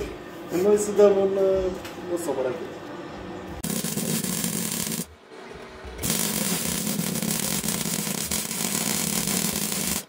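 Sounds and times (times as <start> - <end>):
welding arc hissing: 3.6 - 5.1, 6.0 - 10.0.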